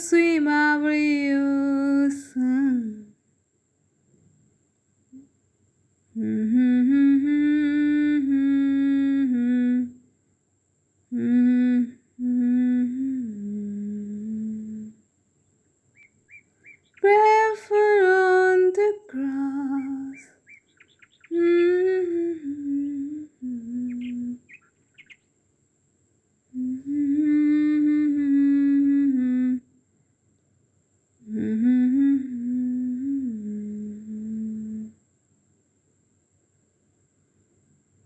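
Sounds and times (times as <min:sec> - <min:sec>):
person humming a slow melody: 0:00.0 - 0:03.2, 0:06.1 - 0:10.1, 0:11.1 - 0:15.0, 0:17.0 - 0:20.5, 0:21.2 - 0:24.7, 0:26.5 - 0:29.7, 0:31.2 - 0:35.0.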